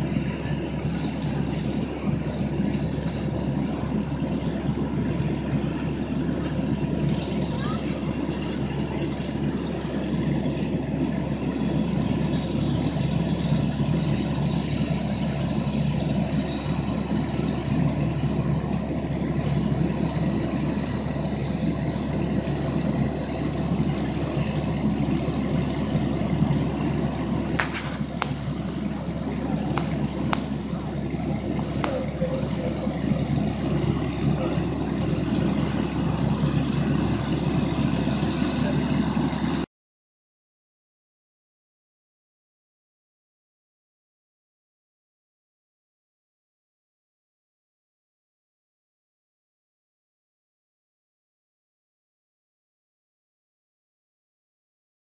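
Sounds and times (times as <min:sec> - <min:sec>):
diesel engine running: 0:00.0 - 0:39.7.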